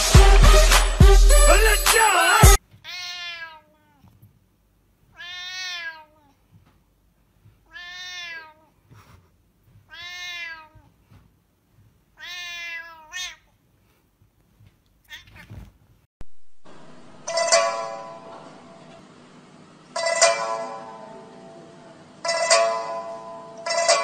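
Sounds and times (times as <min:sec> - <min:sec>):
cat meowing: 0:02.8 - 0:04.1, 0:05.1 - 0:06.4, 0:07.6 - 0:08.8, 0:09.9 - 0:11.0, 0:12.2 - 0:13.5, 0:15.0 - 0:15.7.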